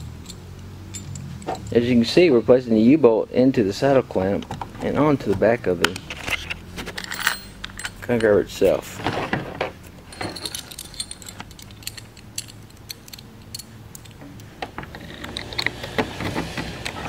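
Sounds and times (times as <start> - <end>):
metal clamps clinking and rattling: 0.0 - 1.9, 5.9 - 16.0.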